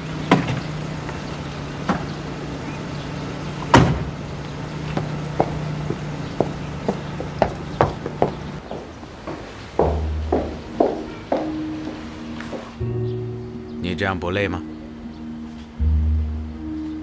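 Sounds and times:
car engine humming: 0.0 - 13.9, 14.6 - 17.0
footsteps walking away: 0.5 - 13.3
car door banging shut: 3.7 - 4.2.

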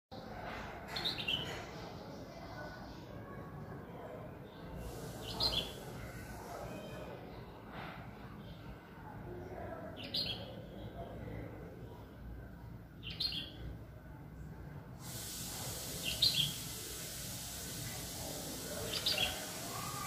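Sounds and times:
steady hiss: 4.8 - 6.7, 15.0 - 20.0
bird chirping: 16.0 - 16.8.

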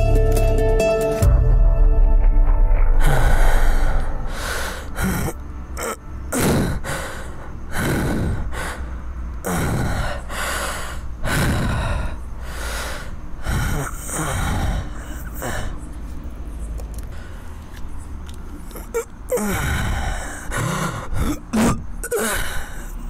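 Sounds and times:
man gasping and breathing heavily: 3.0 - 5.4, 6.4 - 15.9, 19.3 - 21.5.

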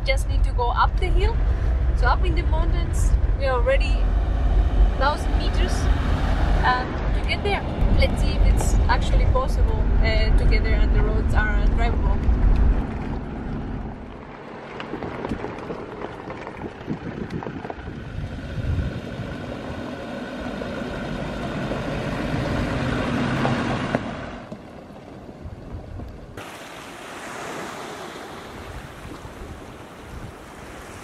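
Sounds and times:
wind: 0.0 - 31.0
vehicle engine on gravel track: 10.7 - 26.7
sea washing against rocky shore: 26.4 - 31.0.

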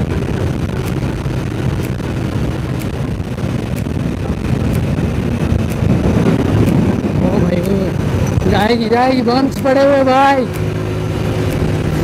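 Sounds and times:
motorcycle engine running: 0.0 - 12.0
wind rushing over microphone: 0.0 - 12.0
faint high tick: 0.8 - 1.0, 1.8 - 7.9.

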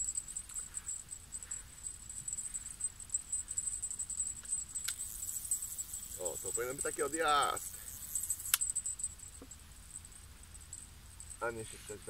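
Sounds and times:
crickets chirping: 0.0 - 12.0
sharp click: 8.4 - 8.7.

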